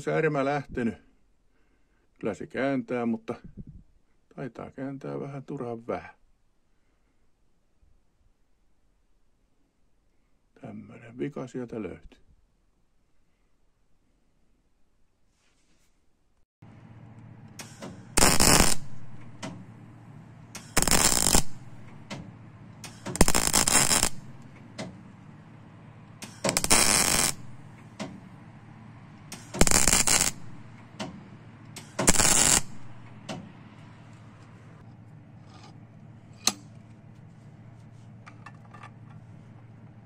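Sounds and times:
welder low hum: 16.6 - 36.8
welding crackle: 18.2 - 19.2, 20.6 - 21.9, 22.8 - 24.6, 26.2 - 27.8, 29.3 - 30.8, 31.8 - 33.0.

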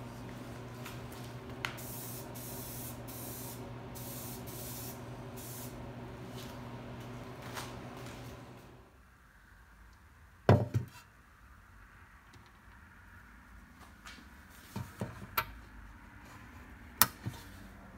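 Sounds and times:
steady low hum: 0.0 - 9.0
spray paint can hissing: 1.7 - 5.8.

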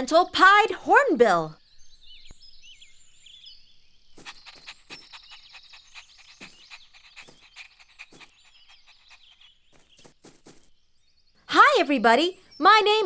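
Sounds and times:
faint birdsong: 0.0 - 13.0
puppy panting: 4.2 - 10.6.

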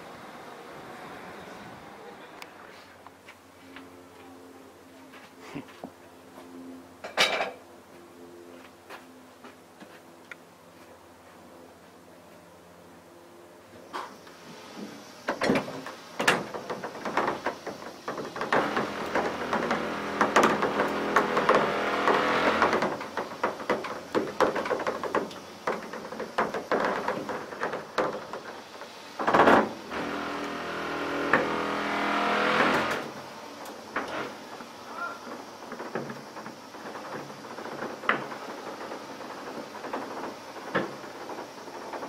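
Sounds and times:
carriages clattering on rails: 32.6 - 42.0.

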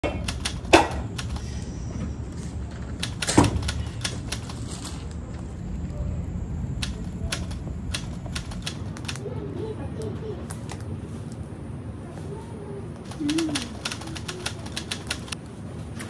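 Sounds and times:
campfire crackling: 0.0 - 9.4, 13.0 - 15.6
low steady rumble: 0.0 - 15.9.

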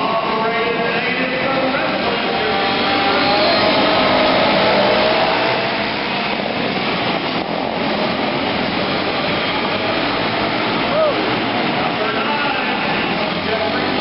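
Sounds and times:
race car engines droning: 0.0 - 14.0
climbing engine note: 1.9 - 6.2.

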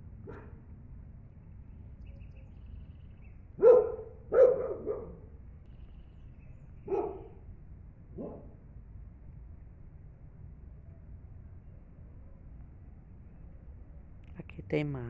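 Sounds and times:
dog barking: 0.2 - 0.6, 3.6 - 5.3, 6.8 - 7.4, 8.2 - 8.6.

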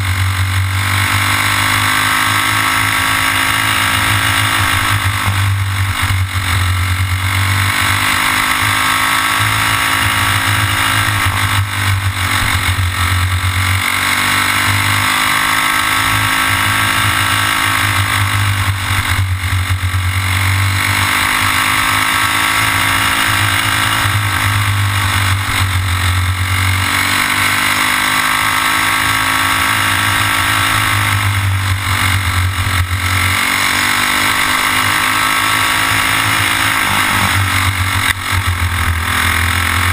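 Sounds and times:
go-kart engine revving: 0.0 - 39.9.

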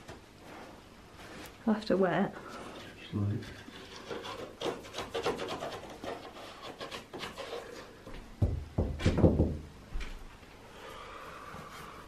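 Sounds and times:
wallpaper scratching rubs: 2.4 - 8.0.

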